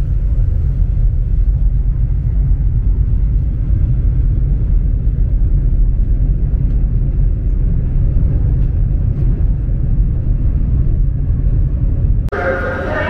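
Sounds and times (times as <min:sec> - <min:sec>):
train rumbling at speed: 0:00.0 - 0:13.0.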